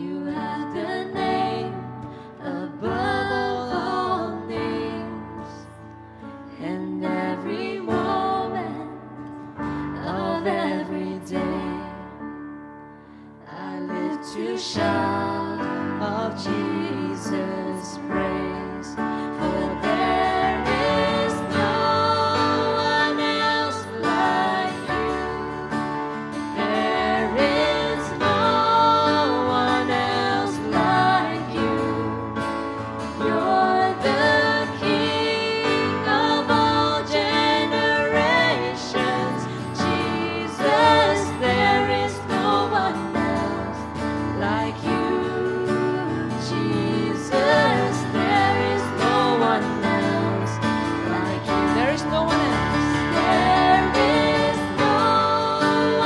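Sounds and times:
woman singing: 0.0 - 5.8, 6.5 - 9.1, 9.9 - 12.2, 13.5 - 25.8, 26.6 - 32.5, 33.2 - 56.0
keyboard chords: 14.8 - 56.0
strummed acoustic guitar: 19.4 - 56.0.

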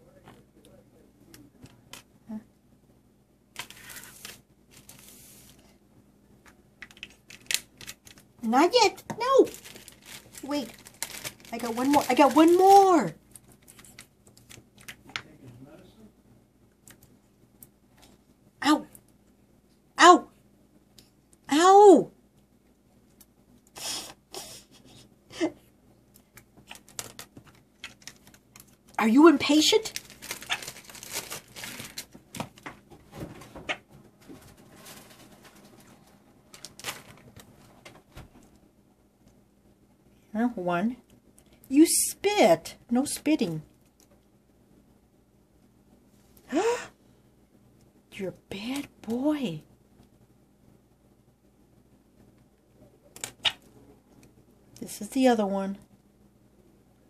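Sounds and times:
plastic bag crinkling: 3.6 - 5.6, 6.8 - 8.4, 9.0 - 15.1, 26.6 - 32.9, 34.4 - 38.0.

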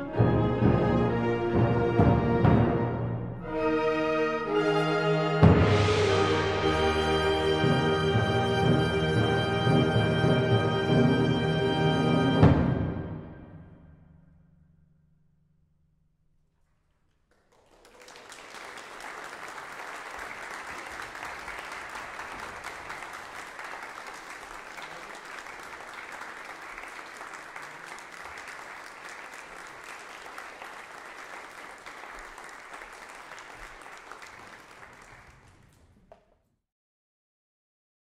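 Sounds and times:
audience applause: 17.3 - 36.0.

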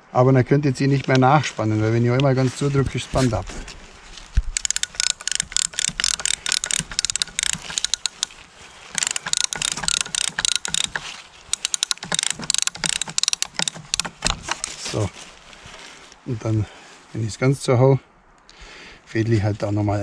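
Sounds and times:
ratchet tensioner clicking: 4.5 - 14.8.

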